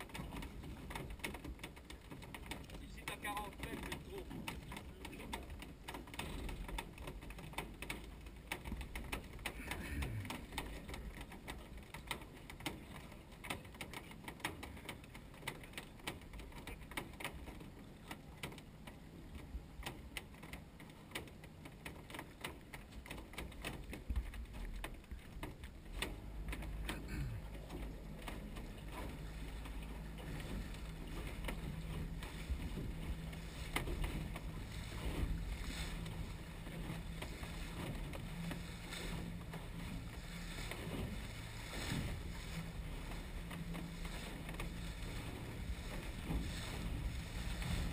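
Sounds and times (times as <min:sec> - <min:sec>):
water slapping against boat hull: 0:00.0 - 0:47.9
low rumble: 0:26.2 - 0:47.9
wind on microphone: 0:31.6 - 0:47.9.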